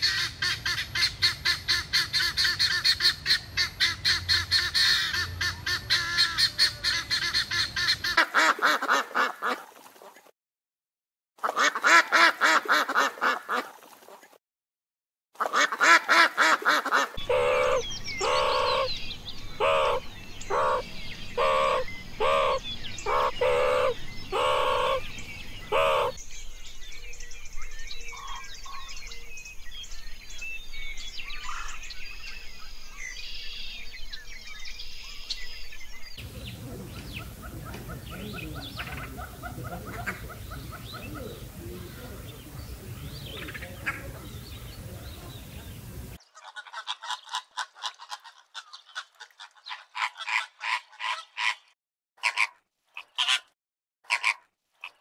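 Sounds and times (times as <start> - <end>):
birds honking: 0.0 - 9.6, 15.5 - 26.2, 36.2 - 51.6
outdoor ambience: 15.4 - 46.8
faint bird chirps: 17.2 - 46.5.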